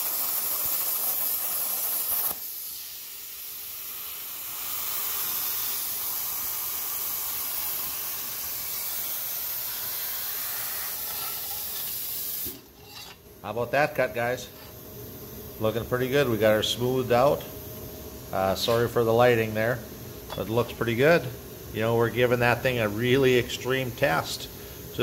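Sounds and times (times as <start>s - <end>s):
plasma cutter hissing: 0.0s - 17.5s
steady air hiss: 0.0s - 25.0s.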